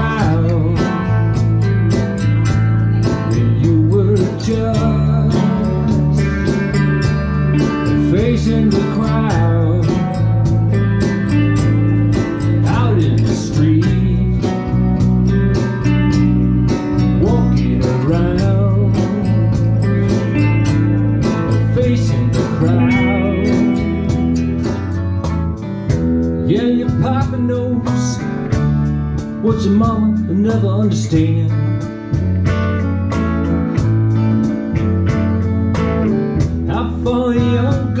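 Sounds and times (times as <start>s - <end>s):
person singing: 0.0s - 1.3s, 3.2s - 6.5s, 7.8s - 10.4s, 12.6s - 14.7s, 17.2s - 20.3s, 21.4s - 25.0s, 26.4s - 28.4s, 36.7s - 38.0s
bass notes: 0.0s - 38.0s
strummed acoustic guitar: 0.0s - 38.0s.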